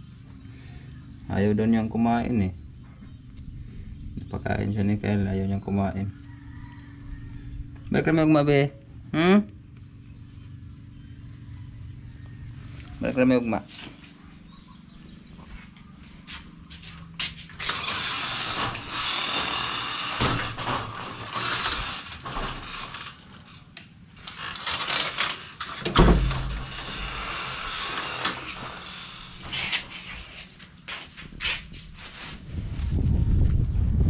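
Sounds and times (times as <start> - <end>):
wooden door scraping and rattling: 17.4 - 30.6
heavy door thump: 20.2 - 21.3, 25.8 - 27.2.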